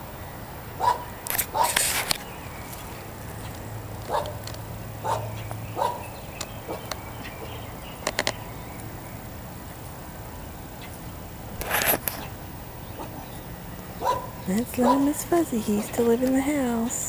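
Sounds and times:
dogs barking: 0.8 - 1.9, 4.0 - 7.7, 12.9 - 13.4, 14.0 - 16.1
cluster of clicks: 1.2 - 5.7, 6.3 - 9.0, 11.6 - 12.4, 15.0 - 17.0.

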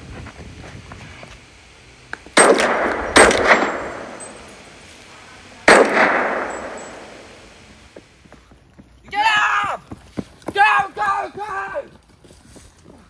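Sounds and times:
rifle shots echoing: 2.4 - 4.8, 5.7 - 7.7.

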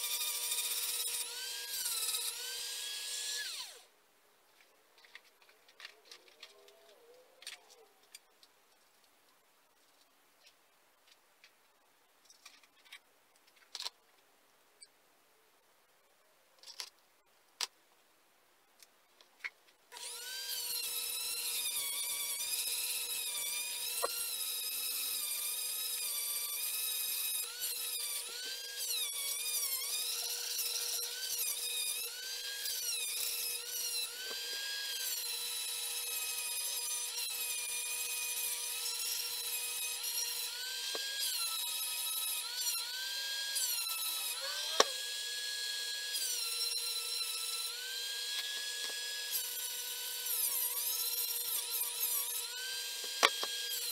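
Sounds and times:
rotary tool grinding whine: 0.0 - 3.9, 19.9 - 53.9
metal parts clicking: 5.0 - 6.7.

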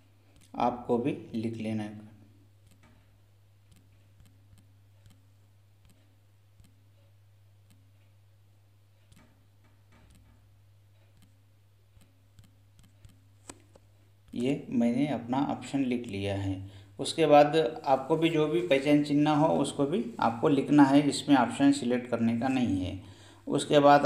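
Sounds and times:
low steady hum: 0.0 - 24.0
smartphone keyboard clicks: 2.6 - 3.0, 9.1 - 10.4, 11.1 - 13.8.

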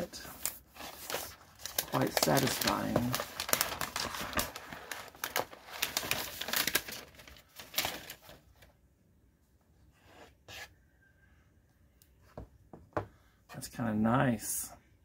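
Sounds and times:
paper wrap crinkling and tearing: 0.0 - 8.4.

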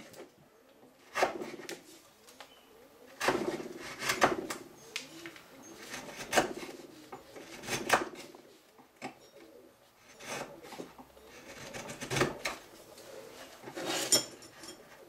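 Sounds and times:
wood chisel cracking into wood: 3.2 - 4.6, 5.9 - 6.7, 7.4 - 8.3.

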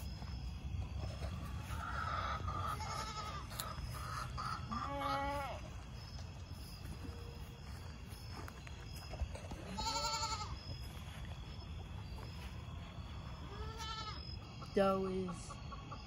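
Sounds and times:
goats bleating: 1.7 - 5.7, 9.6 - 10.6, 13.4 - 14.2.

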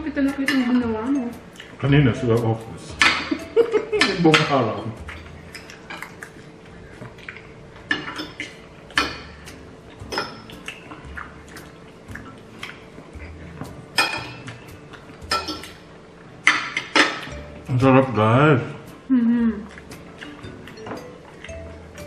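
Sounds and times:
cutlery clinking on plates: 7.9 - 11.0, 13.9 - 15.8, 16.4 - 17.4, 20.0 - 21.6.

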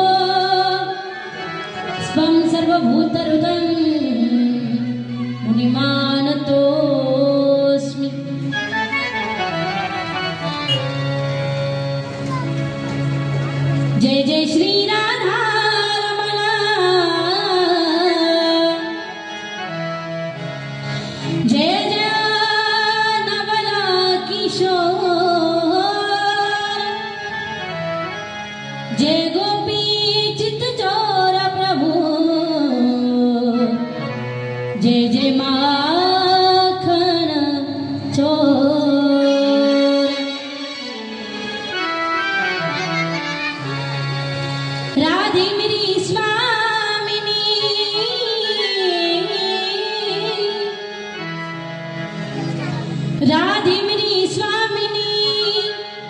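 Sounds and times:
woman singing into microphone: 0.0 - 8.8, 14.0 - 19.7, 21.3 - 27.5, 28.9 - 40.8, 45.0 - 51.3, 53.2 - 56.0
harmonium holding notes: 0.0 - 56.0.

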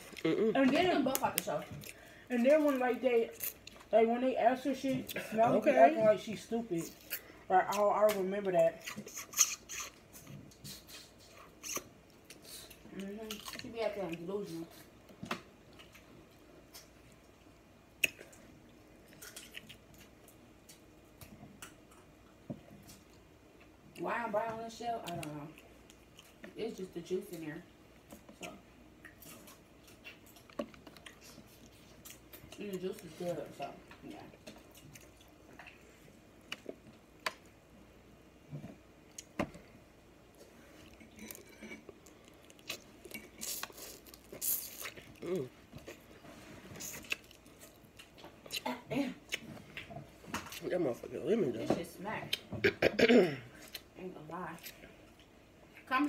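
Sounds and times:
wet chewing and mouth smacks: 15.1 - 23.7, 28.0 - 32.6, 40.3 - 50.6.

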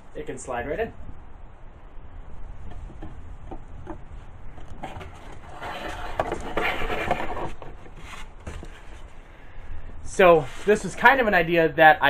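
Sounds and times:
rubbing and scraping of foam model: 3.9 - 9.3, 10.1 - 11.4.

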